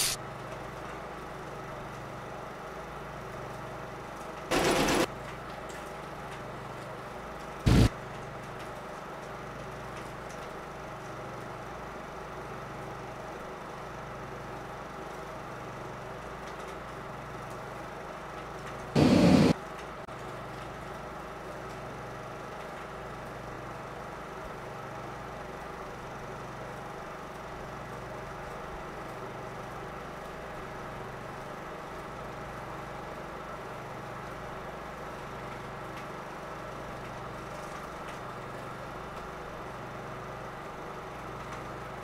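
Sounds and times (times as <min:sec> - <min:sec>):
film projector hum: 0:00.0 - 0:42.0
film projector humming: 0:04.3 - 0:05.4, 0:07.7 - 0:08.5, 0:18.9 - 0:19.6
loud bursts of noise: 0:04.5 - 0:05.1, 0:07.7 - 0:07.9, 0:19.0 - 0:19.6
low drone: 0:19.0 - 0:19.6.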